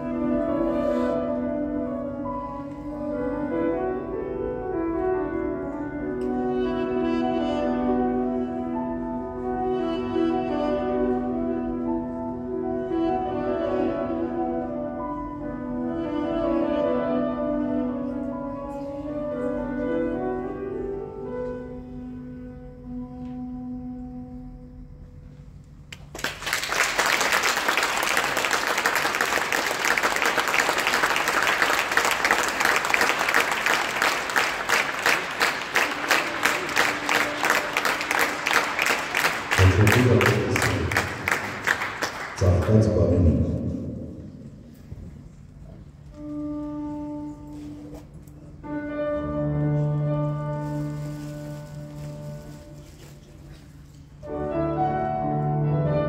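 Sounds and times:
piano accompaniment: 0.0s - 24.4s, 29.9s - 43.3s, 46.2s - 53.5s, 54.1s - 56.0s
duduk playing slow melody: 0.0s - 25.4s, 45.8s - 56.0s
audience applause: 26.0s - 42.7s.

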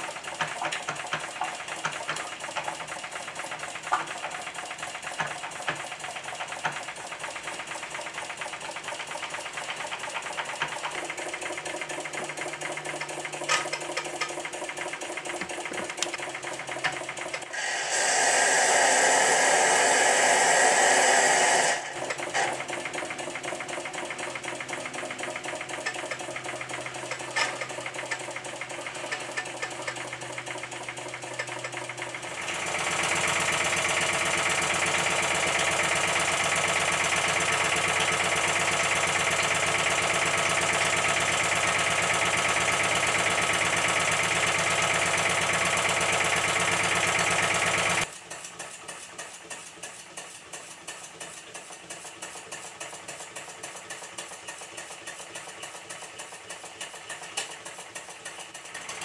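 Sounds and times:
model steam engine clattering: 0.0s - 17.7s, 21.9s - 59.0s
steam hissing: 17.4s - 28.0s.

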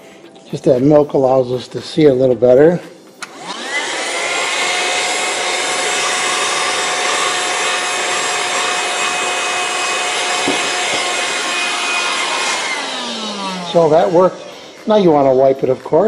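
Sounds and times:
handheld vacuum running: 3.2s - 15.2s.

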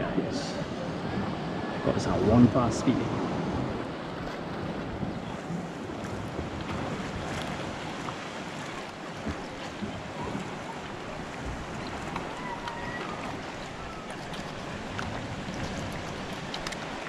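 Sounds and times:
sea water washing against rocks: 1.1s - 17.0s
faint clicks: 14.1s - 17.0s.

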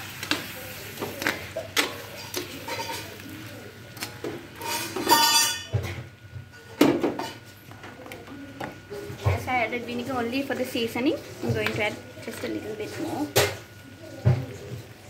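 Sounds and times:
spatula scraping a metal wok: 4.6s - 5.6s.

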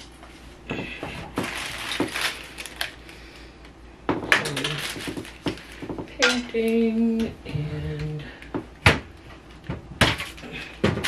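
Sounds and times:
plastic bottles clattering: 0.7s - 3.0s, 4.1s - 6.7s, 10.0s - 11.0s.

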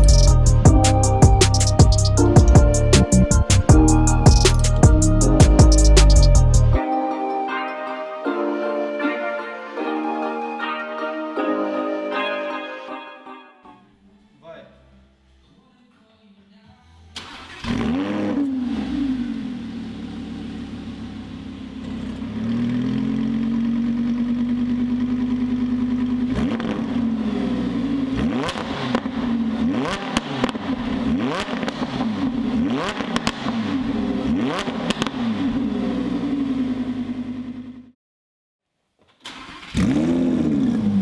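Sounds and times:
sports car engine revving: 17.3s - 37.8s, 39.6s - 41.0s
exhaust pops: 32.8s - 33.6s.

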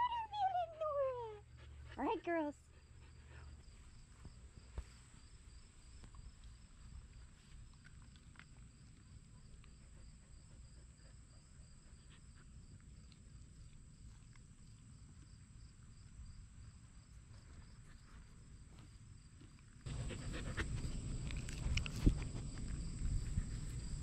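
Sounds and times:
insects chirping: 2.7s - 24.0s
dog licking and sniffing: 6.2s - 15.5s, 19.5s - 24.0s
low steady rumble: 19.9s - 24.0s.

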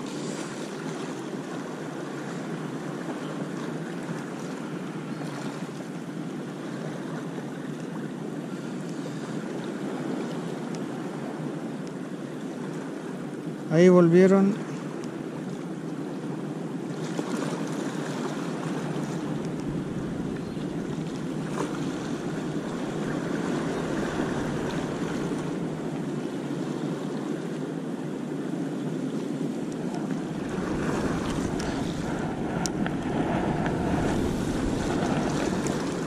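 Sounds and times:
sea surf washing on beach: 0.0s - 36.0s
wind rumbling on microphone: 14.8s - 36.0s.

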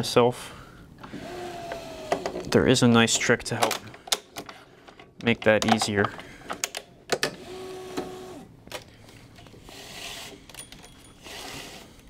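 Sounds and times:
motor whir: 1.1s - 2.4s, 7.4s - 8.5s.

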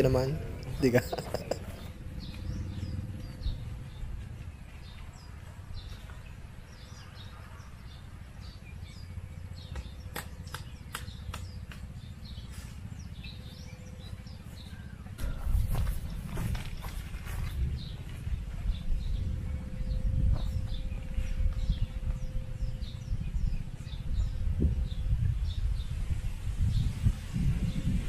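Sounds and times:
birds chirping: 0.0s - 28.0s
low wind rumble: 0.0s - 28.0s
tent stake pounded into ground: 15.2s - 17.6s.

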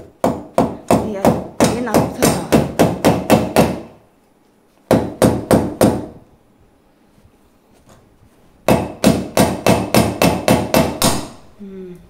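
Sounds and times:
hammer striking into wood: 0.0s - 4.0s, 4.9s - 6.2s, 8.6s - 11.4s.

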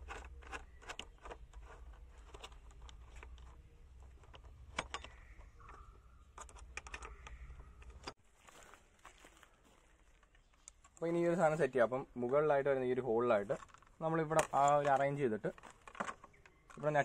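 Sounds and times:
bolt and nut clicking: 0.0s - 8.2s.

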